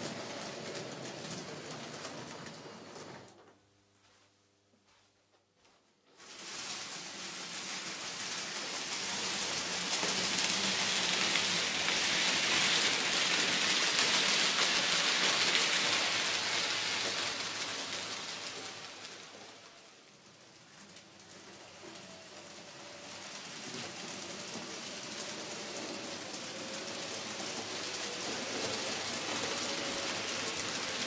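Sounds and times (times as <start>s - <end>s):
model train wheels rattling on track: 6.2s - 31.0s.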